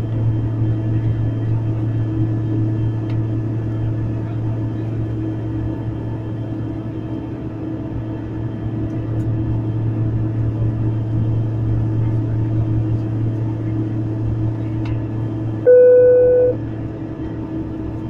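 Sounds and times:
aircraft engines droning: 0.0 - 18.0
electronic beep: 15.7 - 16.6.

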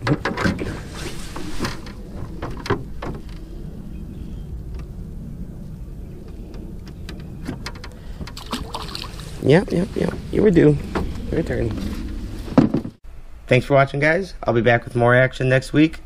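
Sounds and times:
wind rumble on microphone: 0.0 - 13.0
fish splashing: 8.4 - 9.4
water lapping: 8.4 - 9.4.

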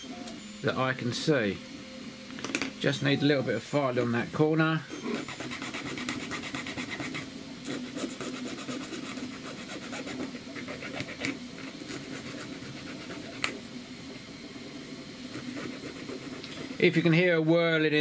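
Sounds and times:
printer whirring: 0.0 - 18.0
file scraping plastic: 5.1 - 13.6.

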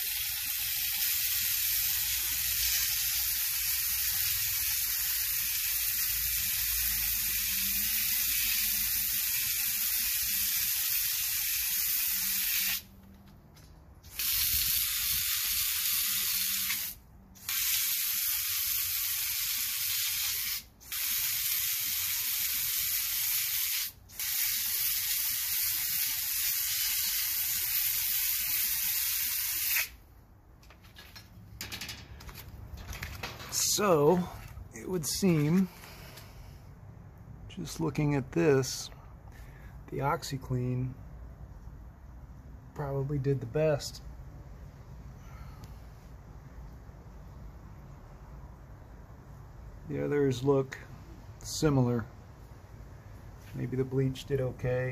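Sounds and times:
hose nozzle spraying concrete: 0.0 - 12.8, 14.1 - 30.0.

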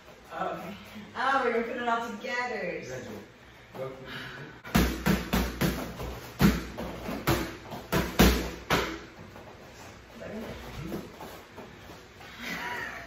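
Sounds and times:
punches smacking boxing gloves: 4.7 - 9.0.

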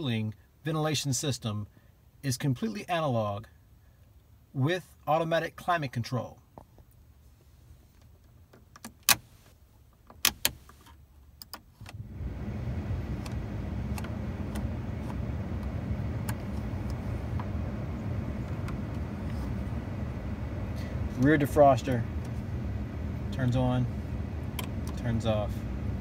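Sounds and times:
blower fan running: 11.9 - 26.0.

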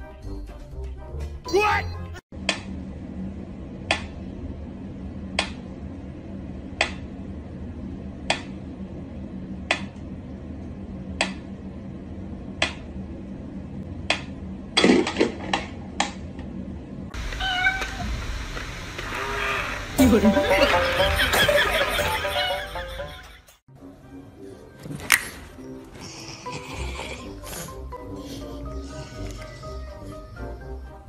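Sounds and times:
cat meowing: 17.3 - 18.1.

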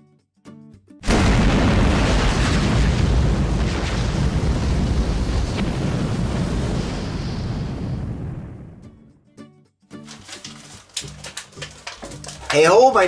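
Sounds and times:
explosion blast: 1.0 - 9.0
deep fiery rumble: 1.1 - 9.0.

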